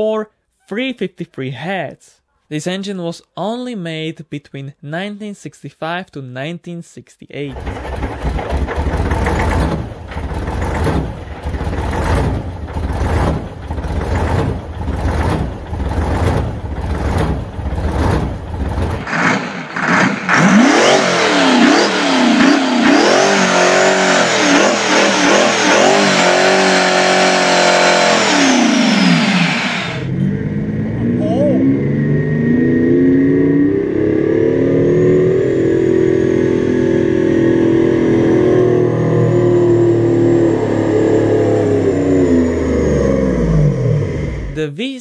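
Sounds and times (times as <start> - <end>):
heavy low diesel engine: 7.5 - 19.8, 34.8 - 44.6
engine revving up and down: 7.5 - 44.6
high engine whine: 7.5 - 44.6.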